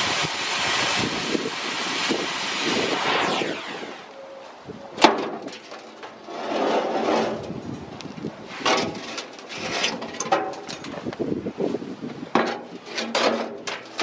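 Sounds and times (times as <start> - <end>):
cutting torch hiss: 0.0 - 4.1.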